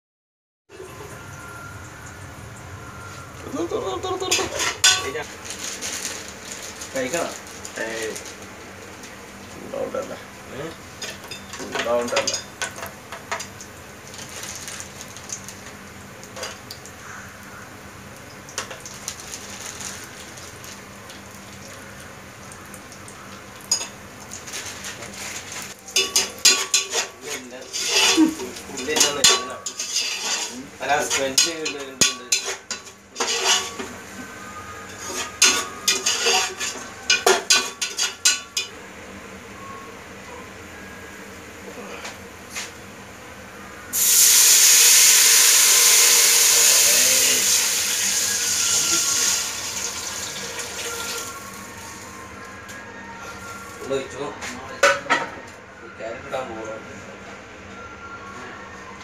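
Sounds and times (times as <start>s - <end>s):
faint sizzle: 0.7s - 54.5s
metal spatula scraping a pot: 26.0s - 33.9s, 34.9s - 38.4s.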